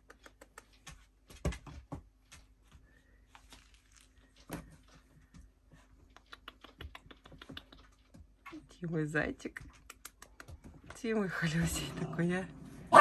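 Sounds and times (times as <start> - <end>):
faint clicks and taps: 4.4 - 8.6, 9.4 - 11.2.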